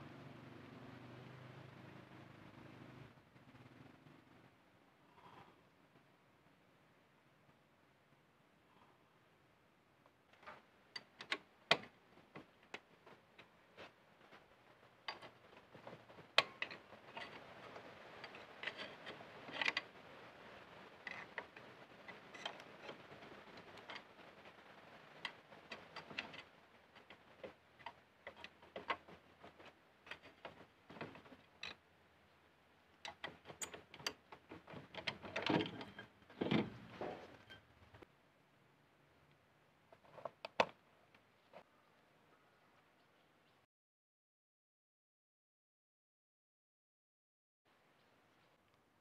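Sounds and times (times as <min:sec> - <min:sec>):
metal clunks: 0:33.1 - 0:37.7.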